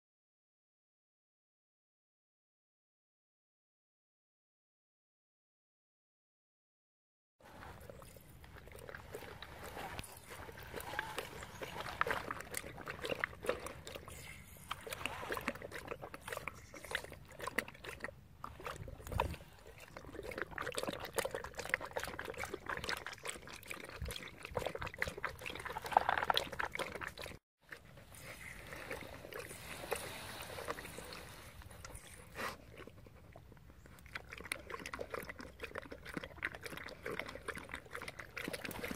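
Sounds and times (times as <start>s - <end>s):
dog lapping water: 7.5s - 38.9s
water trickling into bowl: 7.8s - 27.4s, 33.8s - 38.9s.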